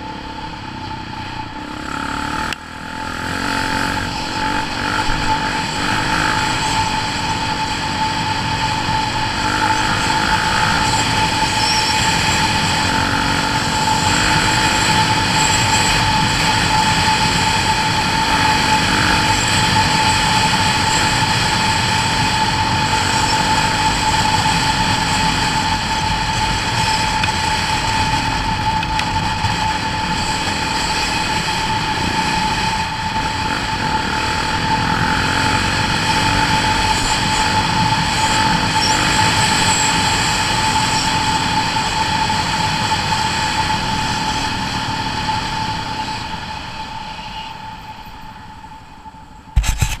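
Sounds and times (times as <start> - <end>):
off-road motorcycle engine: 0.0 - 47.8, 49.1 - 50.0
constant whine: 0.0 - 50.0.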